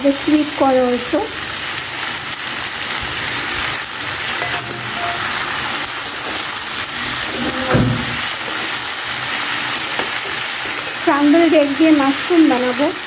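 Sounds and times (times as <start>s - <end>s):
vegetables sizzling in hot oil: 0.0s - 13.0s
metal spatula stirring in wok: 4.3s - 6.5s
knock: 7.6s - 8.2s.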